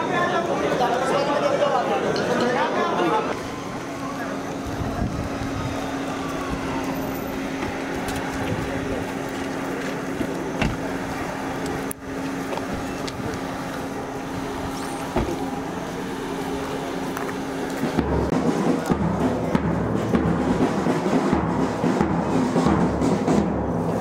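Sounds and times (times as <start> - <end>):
car engine idling: 3.4 - 18.3.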